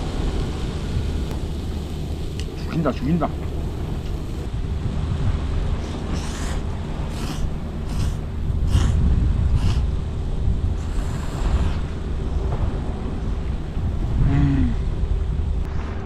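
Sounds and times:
low wind rumble on microphone: 0.0 - 16.0
noodles being slurped: 5.8 - 9.0, 9.6 - 9.9.

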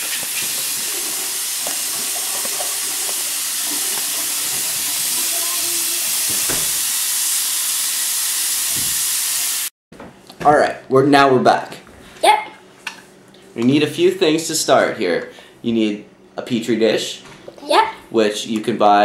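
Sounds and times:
sink tap running: 0.0 - 9.6.

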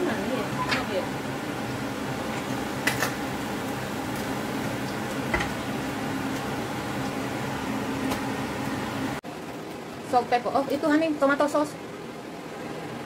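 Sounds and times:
fish sizzling in frying pan: 0.9 - 9.2.

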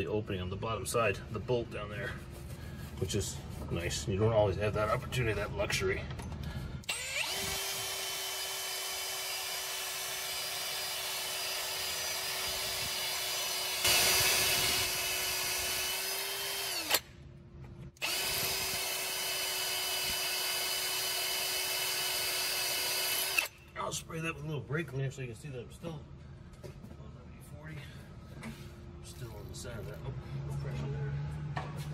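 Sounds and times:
electric drill drilling metal: 6.8 - 17.1, 18.0 - 23.6.

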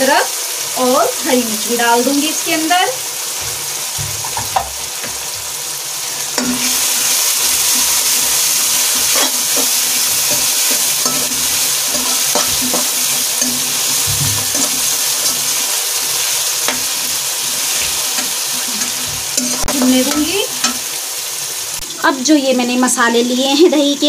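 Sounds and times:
vegetables sizzling in hot oil: 0.0 - 24.0
metal spoon scraping a pot: 8.8 - 15.7.

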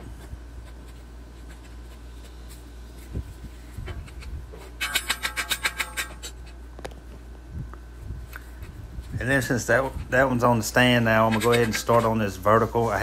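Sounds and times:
low steady hum: 0.0 - 13.0
scraping strokes on metal: 3.8 - 6.6.

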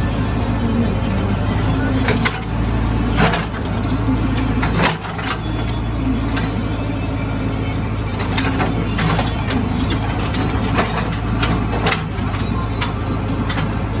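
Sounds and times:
diesel engine running: 0.0 - 14.0
sharp knocks and clacks of machine: 2.0 - 5.6, 8.1 - 14.0.

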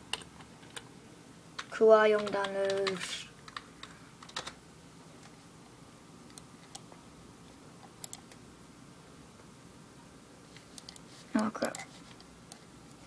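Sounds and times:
computer keys clicking: 0.1 - 0.9, 1.6 - 4.6, 6.3 - 6.9, 7.8 - 8.4, 10.7 - 11.0.

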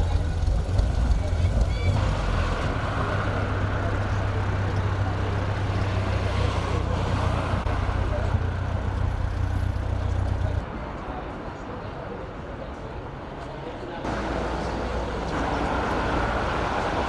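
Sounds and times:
car engine idling: 0.0 - 10.6
faint voices: 0.0 - 17.0
street traffic: 0.0 - 17.0.

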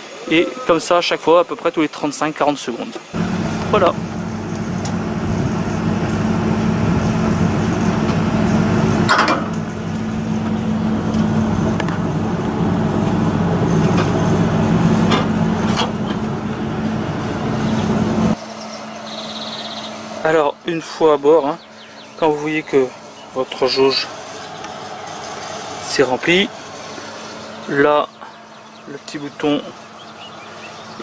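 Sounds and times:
low machine hum: 3.1 - 31.0
metallic clicks and knocks of hoses: 9.0 - 10.1.

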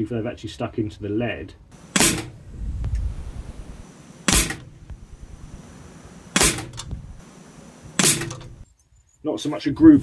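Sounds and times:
air rifle shots: 1.7 - 3.0, 3.6 - 8.6.

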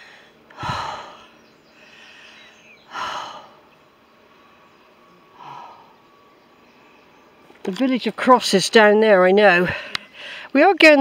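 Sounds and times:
person exhaling heavily: 0.0 - 3.6, 5.3 - 6.0.

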